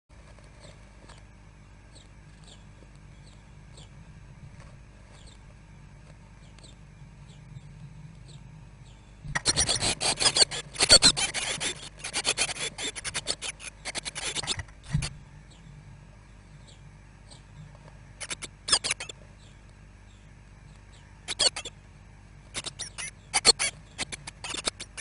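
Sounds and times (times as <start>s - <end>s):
nestlings chirping: 0.6s - 5.6s, 6.3s - 15.8s, 16.4s - 25.0s
chicks begging calls: 8.3s - 15.7s, 16.5s - 21.8s, 22.4s - 25.0s
wings fluttering: 9.3s - 15.2s, 17.9s - 19.2s, 22.5s - 25.0s.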